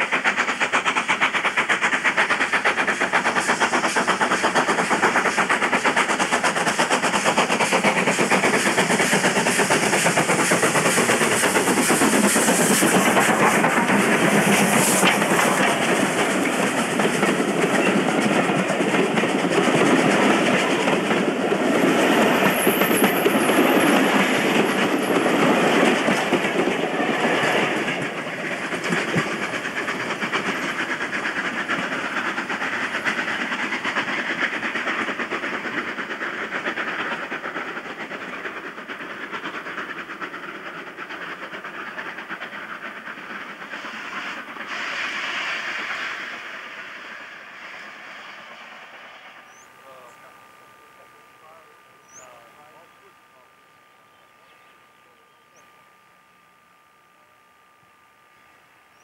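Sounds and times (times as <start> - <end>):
train passing: 0.0 - 59.0
wheels clicking over rail joints: 0.2 - 44.0.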